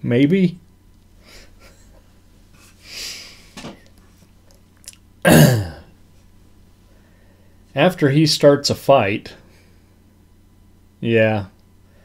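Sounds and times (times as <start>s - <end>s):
man breathing in: 6.9s - 7.6s.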